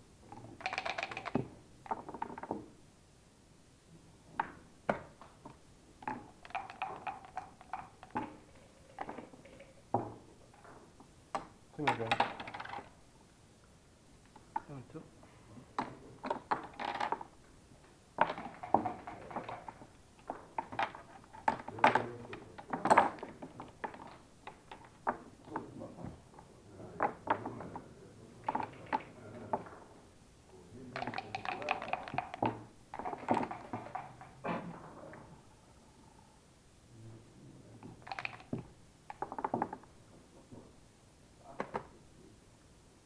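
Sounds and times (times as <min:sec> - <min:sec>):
checkers clacking on board: 0:00.3 - 0:02.6, 0:06.0 - 0:10.7, 0:11.4 - 0:12.9, 0:15.8 - 0:17.3, 0:18.2 - 0:25.8, 0:27.0 - 0:29.8, 0:30.9 - 0:34.5, 0:37.8 - 0:39.9
dice rattling: 0:00.4 - 0:02.5, 0:06.0 - 0:10.0, 0:11.9 - 0:12.9, 0:16.3 - 0:17.3, 0:18.2 - 0:25.3, 0:30.9 - 0:34.4, 0:37.9 - 0:39.8.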